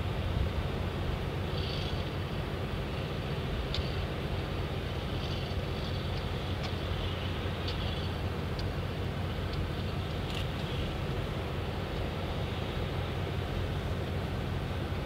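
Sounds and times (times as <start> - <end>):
distant heavy machinery rumble: 0.0 - 15.0
faint high ticks: 1.5 - 2.2, 3.7 - 4.0, 5.2 - 10.9.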